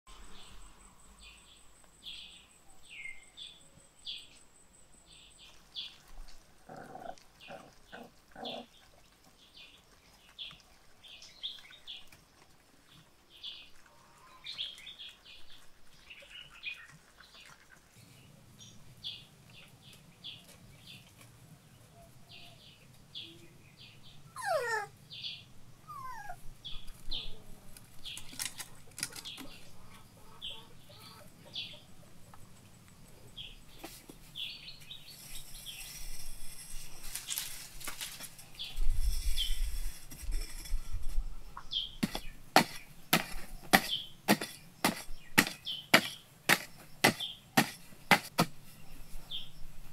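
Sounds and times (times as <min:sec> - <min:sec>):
birds chirping: 0:12.9 - 0:37.6, 0:38.4 - 0:49.7
puppies yapping: 0:24.3 - 0:24.9, 0:25.8 - 0:26.4
puppy whining: 0:24.3 - 0:25.0, 0:25.8 - 0:26.5.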